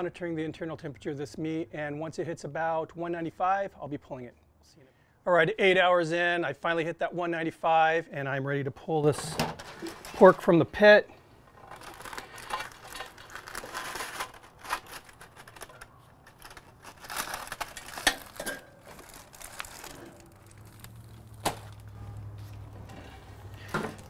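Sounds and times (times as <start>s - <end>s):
aluminium foil crinkling: 9.6s - 10.4s, 11.5s - 22.4s.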